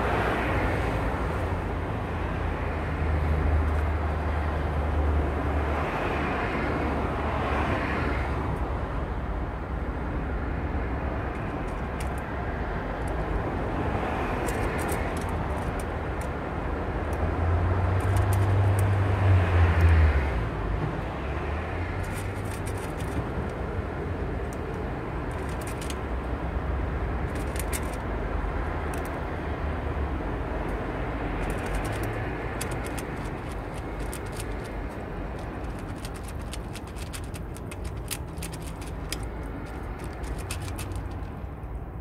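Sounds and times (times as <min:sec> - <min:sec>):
cat licking and chewing: 0:31.4 - 0:41.3.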